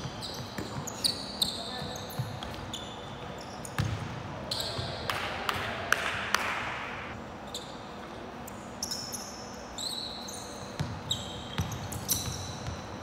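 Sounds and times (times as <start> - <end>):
sneakers squeaking on floor: 0.0 - 5.1, 7.4 - 13.0.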